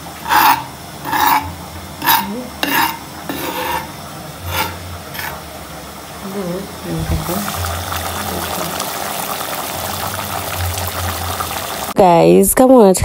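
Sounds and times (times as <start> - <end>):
metal spoon scraping flour in pan: 0.2 - 5.4.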